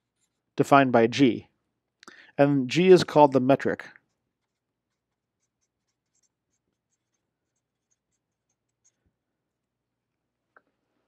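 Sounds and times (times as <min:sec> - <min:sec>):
marker scratching on paper: 0:00.0 - 0:00.6, 0:04.0 - 0:09.8.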